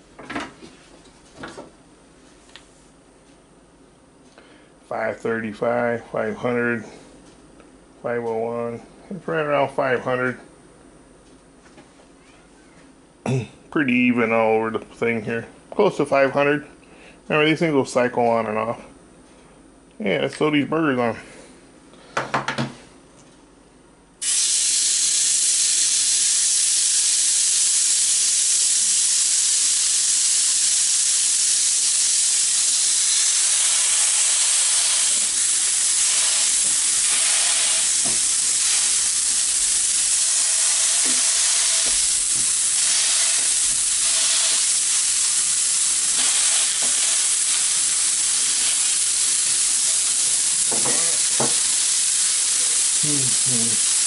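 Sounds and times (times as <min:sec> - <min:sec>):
meat patties sizzling on a griddle: 0:24.2 - 0:54.0.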